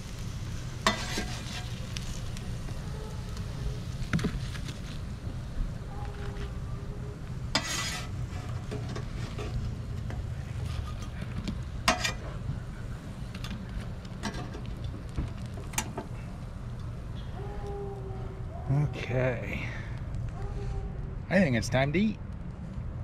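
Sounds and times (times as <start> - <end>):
metal spatula scraping griddle: 0.8 - 2.2, 7.4 - 12.4.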